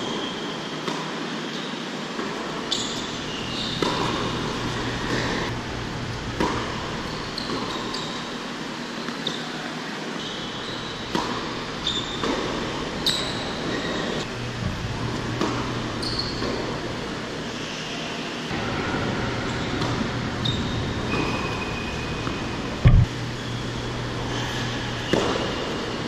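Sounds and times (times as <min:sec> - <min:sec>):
shoes squeaking on court: 0:00.0 - 0:05.6, 0:06.3 - 0:14.3, 0:15.2 - 0:17.7, 0:19.4 - 0:26.0
ball bouncing on hard court: 0:02.2 - 0:05.5, 0:06.3 - 0:08.2, 0:11.0 - 0:13.8, 0:15.2 - 0:16.8, 0:22.8 - 0:23.1
racket striking tennis ball: 0:03.7 - 0:05.4.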